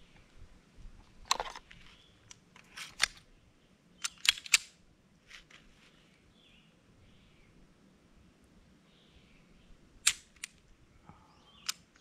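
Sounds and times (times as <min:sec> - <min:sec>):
pistol metallic clicks: 0:04.0 - 0:04.8, 0:10.0 - 0:10.6, 0:11.6 - 0:12.0.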